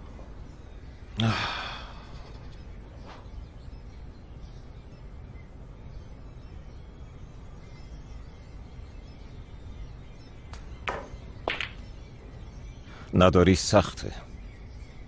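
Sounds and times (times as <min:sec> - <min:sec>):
man sighing: 0:01.2 - 0:02.2.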